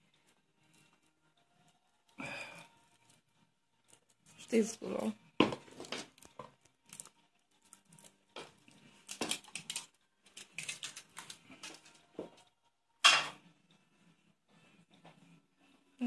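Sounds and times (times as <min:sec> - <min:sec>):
foil wrapper crinkling: 0:09.0 - 0:12.0.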